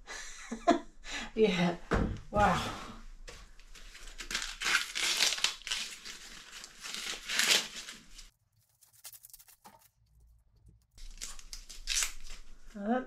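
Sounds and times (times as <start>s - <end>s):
corn husks ripping and rustling: 3.7s - 12.7s.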